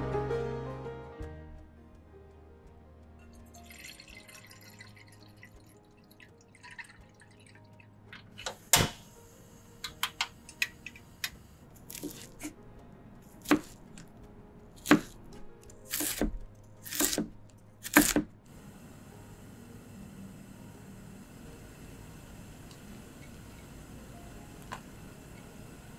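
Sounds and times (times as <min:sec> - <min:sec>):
knife chopping on wooden board: 0:13.4 - 0:13.8, 0:14.8 - 0:15.2, 0:15.9 - 0:18.3
faint steady hiss: 0:18.5 - 0:25.9.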